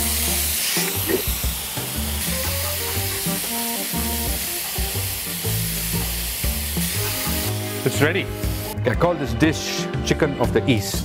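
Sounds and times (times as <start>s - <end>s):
frying pan sizzling and hissing: 0.0s - 8.8s
background music with bass: 0.0s - 11.0s.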